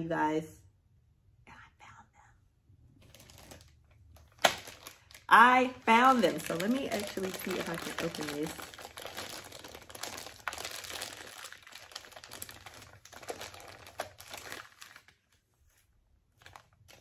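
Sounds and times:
packaging crinkling and tearing: 3.0s - 15.4s, 16.4s - 17.0s.

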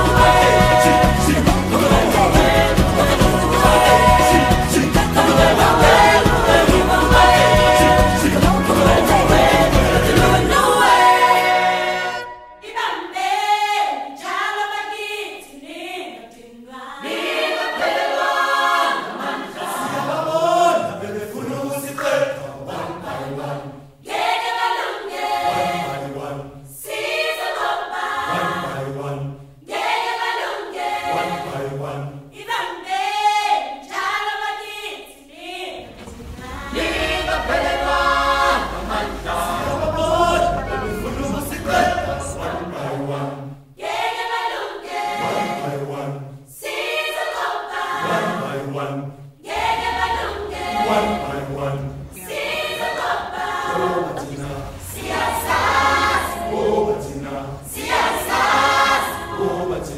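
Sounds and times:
choir singing a song: 0.0s - 59.9s
low steady noise: 35.7s - 43.8s, 48.0s - 59.9s.

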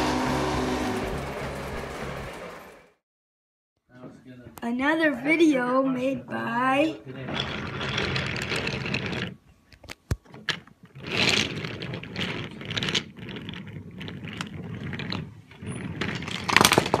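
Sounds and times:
wooden wheels rumbling on table: 7.2s - 9.4s, 10.3s - 17.0s
toy train cars clicking and knocking: 7.3s - 17.0s.

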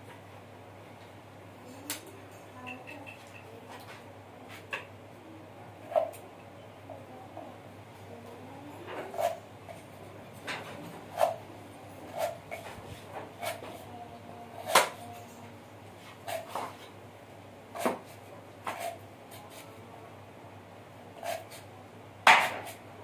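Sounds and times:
knife chopping on hard surface: 17.8s - 19.0s, 22.2s - 22.8s.

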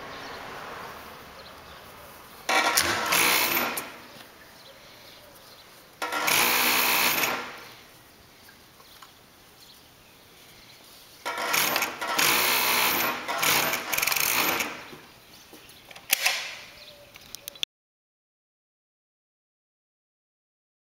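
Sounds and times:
industrial sewing machine stitching: 2.5s - 4.0s, 6.0s - 7.6s, 11.3s - 14.9s.

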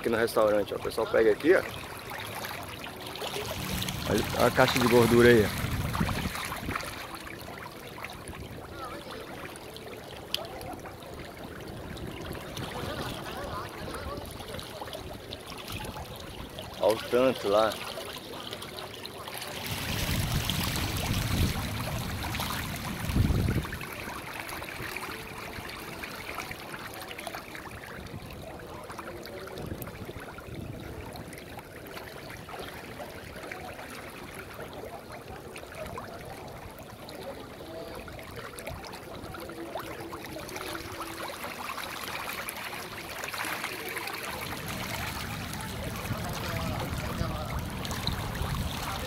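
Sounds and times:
fish thrashing and splashing water: 1.4s - 28.6s.

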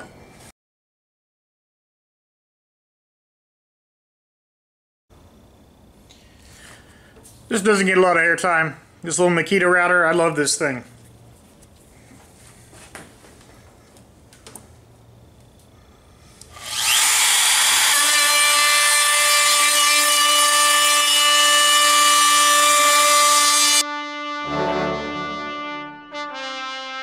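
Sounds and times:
trim router high whine: 16.5s - 23.8s
music with brass: 23.8s - 27.0s.

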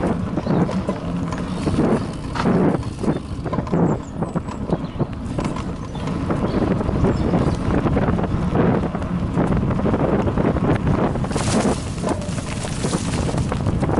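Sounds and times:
bike tyres on dirt: 0.0s - 13.9s
wind rumble on microphone: 0.0s - 13.9s
bike rattling knocks: 9.4s - 13.9s.

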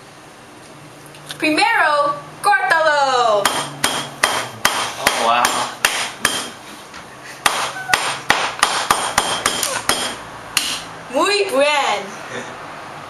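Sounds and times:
knife chopping on plastic board: 3.5s - 6.6s, 7.4s - 10.8s.

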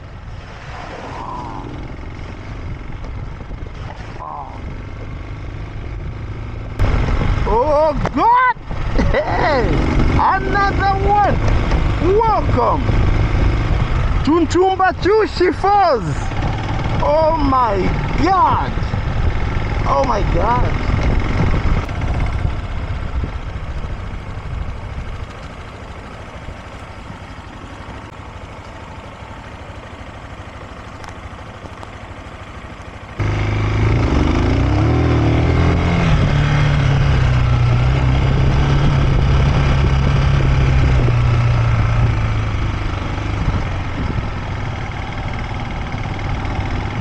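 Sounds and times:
vehicle rushing noise: 0.0s - 4.7s
engine low hum: 0.0s - 15.1s, 15.7s - 47.0s.

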